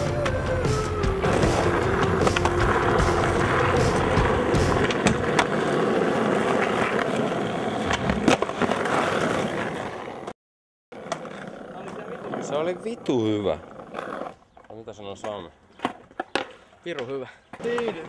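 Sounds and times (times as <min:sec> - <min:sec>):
skateboard wheels rolling on asphalt: 0:00.0 - 0:10.3, 0:10.9 - 0:18.0
skateboard clacks: 0:01.3 - 0:10.1, 0:14.0 - 0:18.0.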